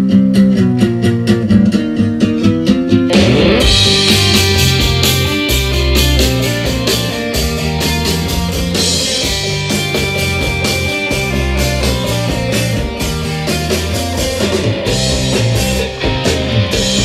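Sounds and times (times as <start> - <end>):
rock music over loudspeakers: 3.0 - 17.0.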